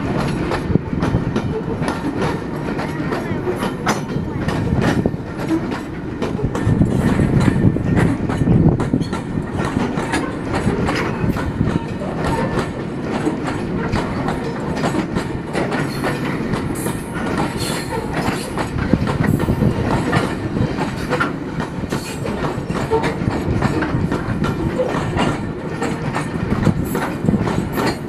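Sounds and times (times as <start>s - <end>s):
train wheels rumbling on rails: 0.0s - 28.0s
wheels clanking over rail joints: 0.0s - 28.0s.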